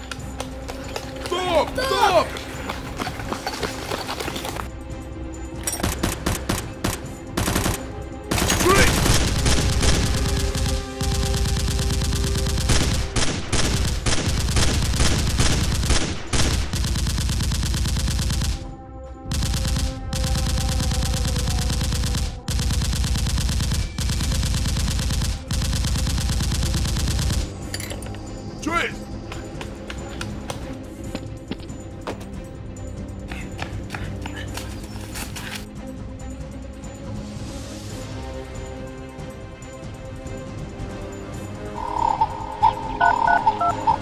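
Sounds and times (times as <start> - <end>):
rapid automatic gunfire: 5.9 - 18.6, 19.3 - 27.5.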